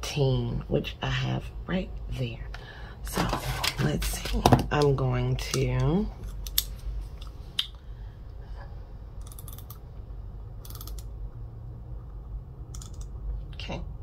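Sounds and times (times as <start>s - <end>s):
low steady hum: 0.0s - 14.0s
mechanism ratcheting: 9.2s - 9.8s, 10.6s - 11.1s, 12.7s - 13.2s.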